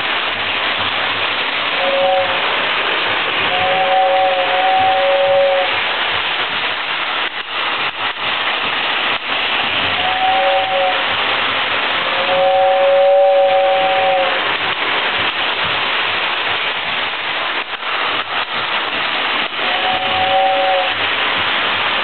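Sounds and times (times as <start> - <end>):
toy train whistle: 1.7 - 2.5, 3.5 - 5.8, 10.0 - 11.1, 12.0 - 14.4, 19.6 - 21.0.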